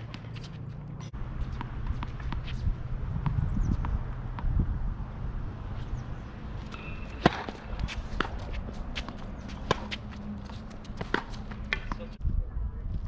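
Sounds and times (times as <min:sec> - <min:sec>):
racket hitting tennis ball: 0:00.0 - 0:02.6, 0:05.8 - 0:12.2
footsteps and shoe scuffs: 0:06.6 - 0:12.2.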